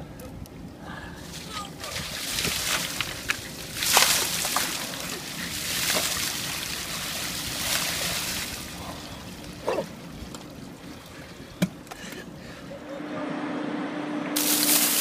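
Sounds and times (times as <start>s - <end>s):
steady hum: 0.0s - 15.0s
water pouring and splashing: 1.2s - 11.3s, 14.4s - 15.0s.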